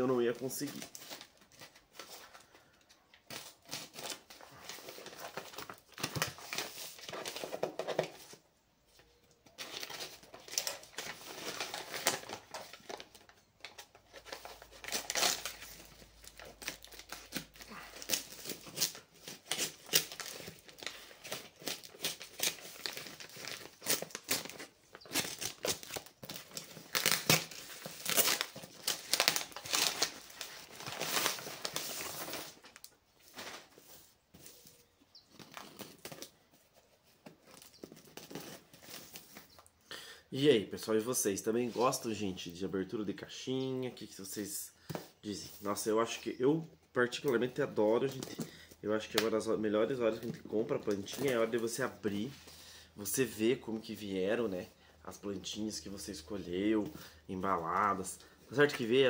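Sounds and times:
wrapping paper crinkling and tearing: 3.2s - 7.6s, 9.5s - 34.7s, 37.0s - 39.7s
knife cutting a parcel open: 14.2s - 32.6s.

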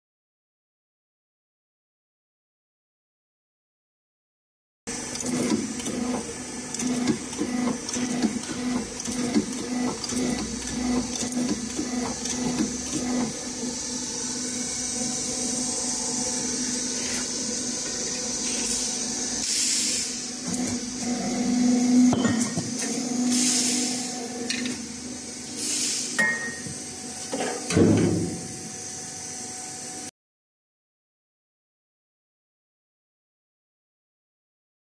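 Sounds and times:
machine humming and hissing: 4.9s - 30.1s.

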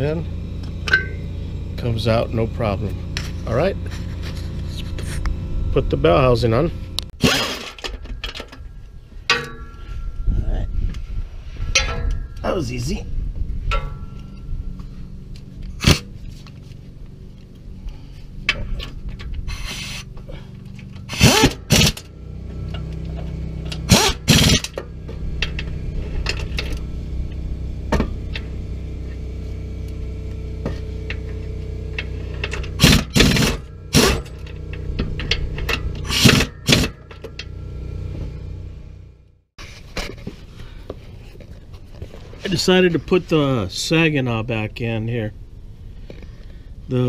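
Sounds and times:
low mechanical hum: 0.0s - 47.0s
air wrench bursts: 7.2s - 8.5s, 19.4s - 20.2s, 21.0s - 22.1s, 23.2s - 24.8s, 32.0s - 37.5s.

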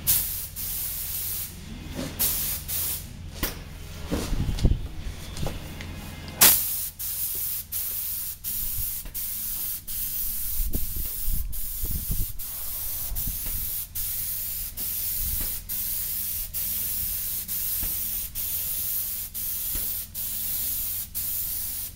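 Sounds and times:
spray gun hissing: 0.0s - 1.5s, 6.4s - 21.9s
low steady hum: 8.0s - 21.0s.

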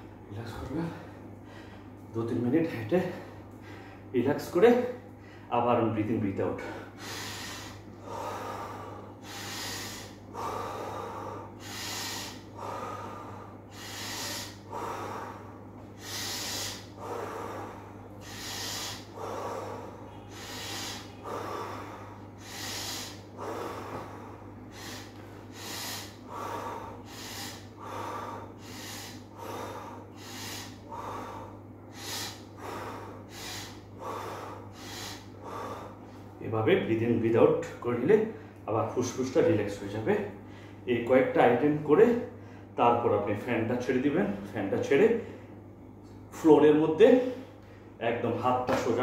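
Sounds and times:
man breathing deeply: 0.0s - 2.1s, 3.0s - 4.1s, 4.9s - 5.5s, 6.6s - 36.4s, 40.3s - 40.9s, 42.2s - 42.8s.

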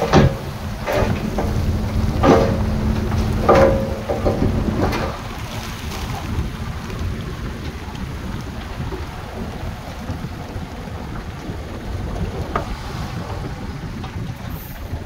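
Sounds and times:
sharp metallic clanks: 0.0s - 5.4s
steady drone: 0.0s - 6.1s
heavy machinery rumbling: 0.0s - 15.0s.

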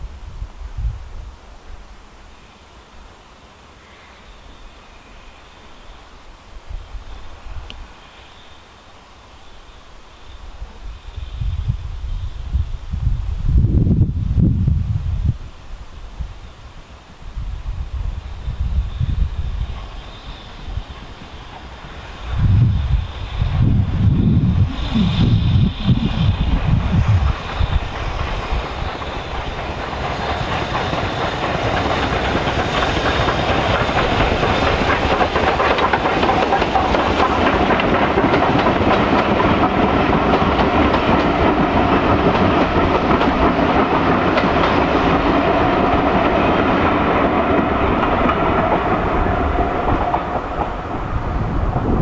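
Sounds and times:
steam locomotive working: 17.6s - 52.0s
train wheels clattering: 19.6s - 52.0s.

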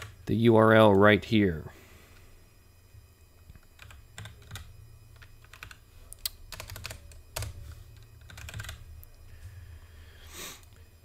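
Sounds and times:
steady low hum: 0.0s - 11.0s
keyboard keys clicking: 3.5s - 7.6s, 8.2s - 8.8s.

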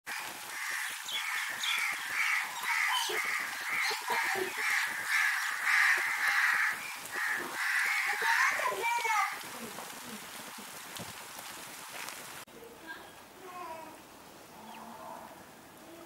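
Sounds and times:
crows cawing: 0.1s - 9.4s.

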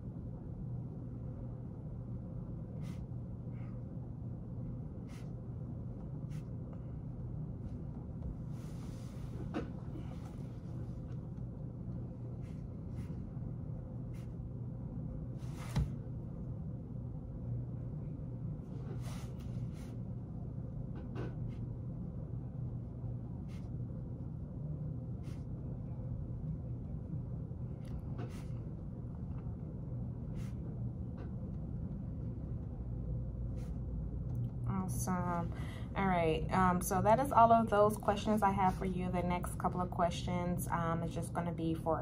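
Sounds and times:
low room hum: 0.0s - 42.0s.

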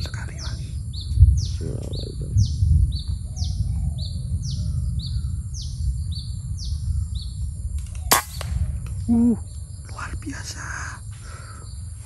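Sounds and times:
wind rumble on microphone: 0.0s - 12.0s
air rifle shot: 8.0s - 9.0s.

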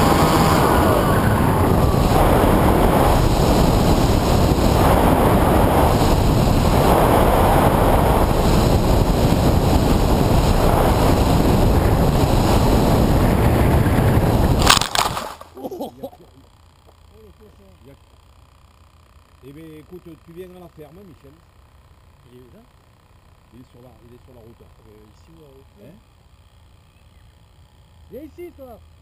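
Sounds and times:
air rushing over microphone: 0.0s - 15.4s.

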